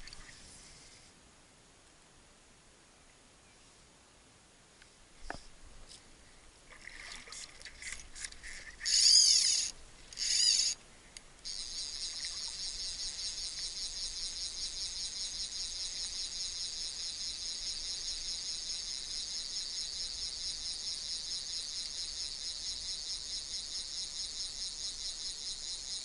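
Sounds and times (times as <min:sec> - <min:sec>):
fishing reel drag buzzing: 0:08.2 - 0:10.8, 0:11.4 - 0:19.8
sharp ticks: 0:08.2 - 0:10.8, 0:11.4 - 0:17.2
high-pitched pulsing rattle: 0:08.4 - 0:10.8, 0:11.4 - 0:26.0.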